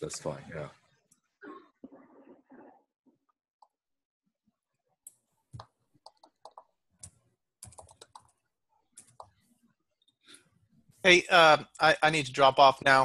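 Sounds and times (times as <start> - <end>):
faint keyboard typing: 5.0 - 10.2.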